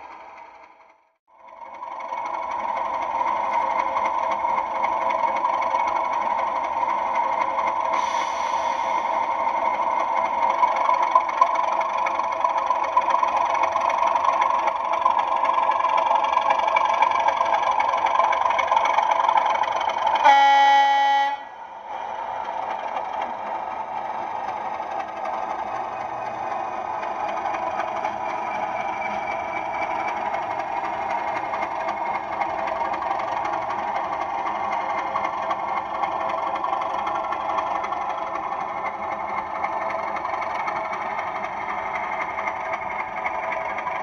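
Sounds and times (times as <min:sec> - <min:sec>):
model locomotive diesel engine: 0:00.0 - 0:44.0
locomotive horn blast: 0:20.2 - 0:21.6.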